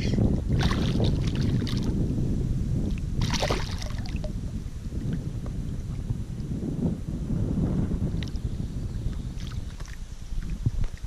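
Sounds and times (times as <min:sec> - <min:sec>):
wind noise on microphone: 0:00.0 - 0:11.0
water splashes: 0:00.5 - 0:02.0, 0:02.9 - 0:04.5, 0:09.3 - 0:11.0.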